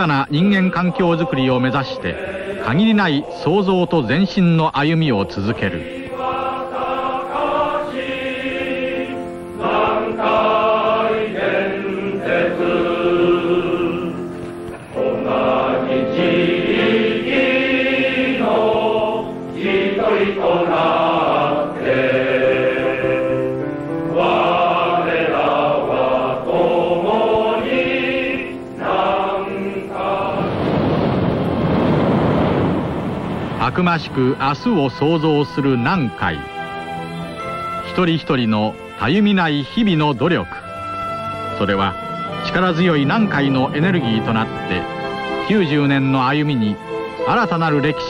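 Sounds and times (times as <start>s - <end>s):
large choir singing in unison: 0.0s - 4.4s, 5.1s - 37.8s.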